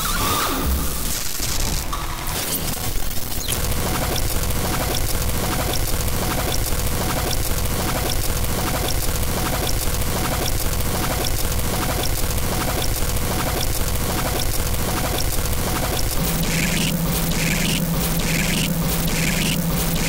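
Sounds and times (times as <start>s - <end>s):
dense electronic noise wash: 3.6s - 20.0s
looped short clicks: 14.2s - 20.0s
held electronic tone: 16.2s - 20.0s.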